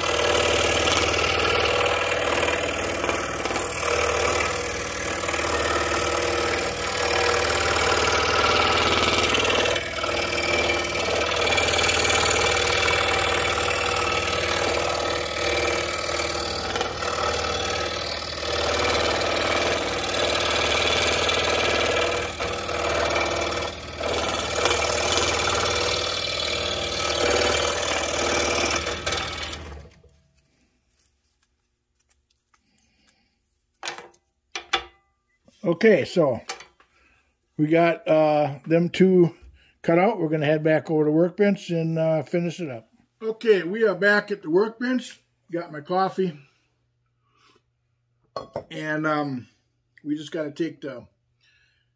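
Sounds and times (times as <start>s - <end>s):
scroll saw cutting wood: 0.0s - 30.1s.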